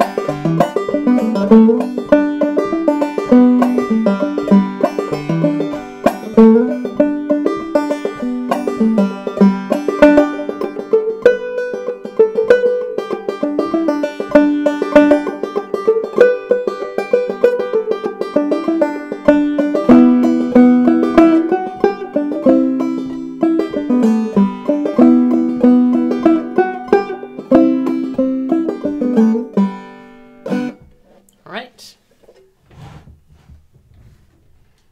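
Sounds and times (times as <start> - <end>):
banjo playing old-time tune: 0.0 - 31.0.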